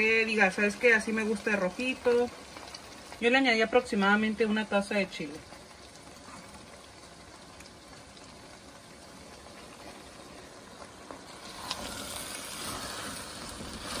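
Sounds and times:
sauce bubbling and sputtering in pan: 0.0 - 14.0
spatula stirring meat: 10.8 - 14.0.

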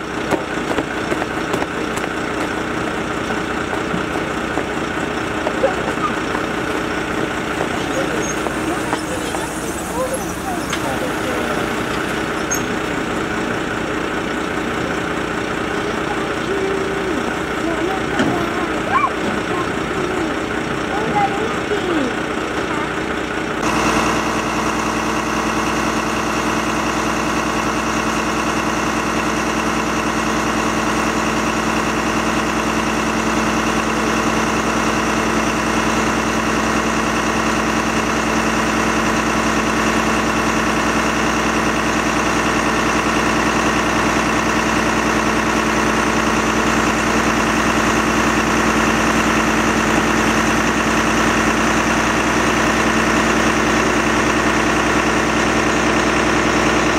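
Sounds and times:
diesel engine droning: 0.0 - 56.9.

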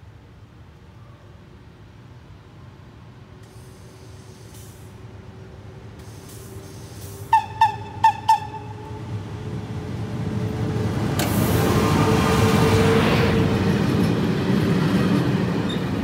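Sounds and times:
train approaching: 0.2 - 16.0
train horn toots: 7.3 - 9.0.

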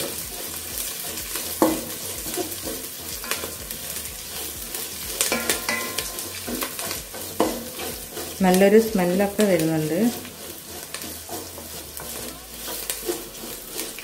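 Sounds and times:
spices sizzling in oil: 0.0 - 14.0
wooden spatula scraping pot: 0.0 - 14.0
spatula knocking against pot: 5.2 - 6.7, 7.4 - 7.7.

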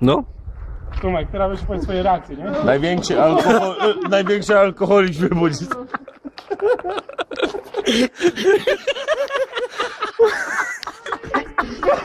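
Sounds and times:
young men laughing: 2.5 - 12.0.

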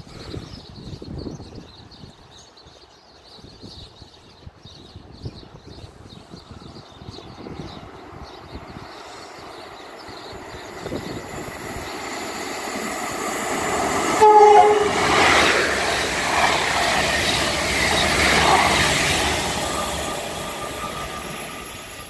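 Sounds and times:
train passing at speed: 6.2 - 22.0
two-tone train horn: 14.1 - 15.4.

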